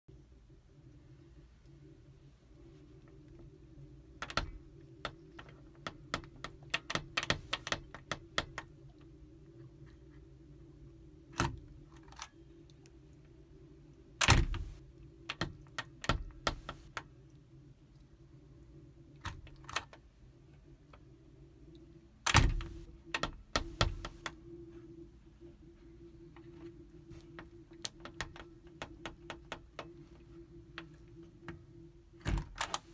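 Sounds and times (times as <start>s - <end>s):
low steady hum: 0.1s - 32.9s
metal door latch clicking: 14.2s - 14.8s, 22.3s - 24.2s, 32.2s - 32.9s.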